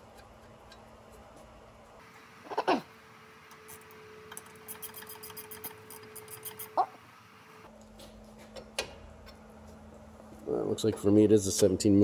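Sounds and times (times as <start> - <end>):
ratchet wrench clicking: 4.6 - 6.7.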